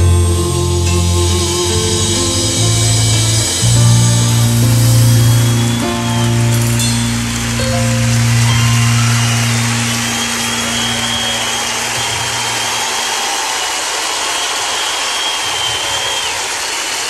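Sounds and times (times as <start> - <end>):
band holding low note: 0.0 - 13.0
audience cheering and applauding: 0.0 - 17.0.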